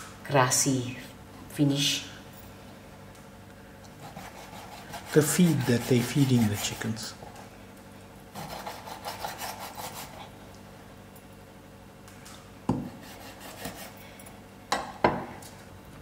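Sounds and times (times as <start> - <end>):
scraping chicken gizzards: 4.2 - 7.1.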